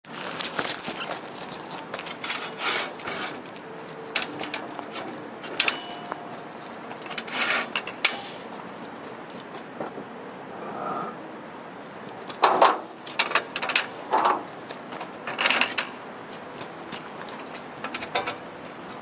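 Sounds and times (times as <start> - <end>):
footsteps on gravel: 0.0 - 5.2, 5.8 - 7.8, 8.4 - 9.8, 13.9 - 19.0
metal ramp scraping and clanking: 4.1 - 8.4, 12.4 - 14.5
metallic ring: 5.4 - 6.5.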